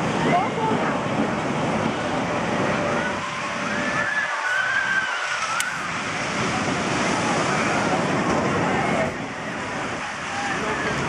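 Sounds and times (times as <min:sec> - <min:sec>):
roller coaster rumbling on track: 0:00.0 - 0:11.0
high gliding squeals: 0:02.8 - 0:06.0.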